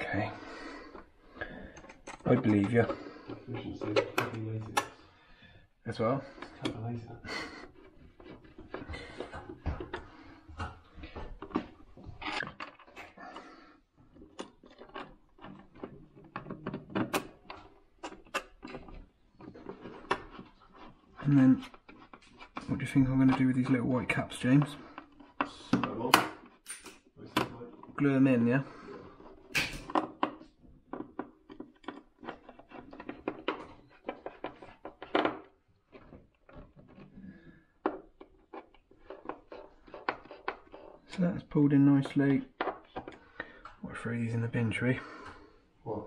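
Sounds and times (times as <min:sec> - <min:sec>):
screwdriver clicking and scraping: 0:07.6 - 0:10.2, 0:11.2 - 0:13.5, 0:14.1 - 0:27.9, 0:29.0 - 0:37.2, 0:37.8 - 0:43.4
screwdriver turning screws: 0:14.1 - 0:27.1.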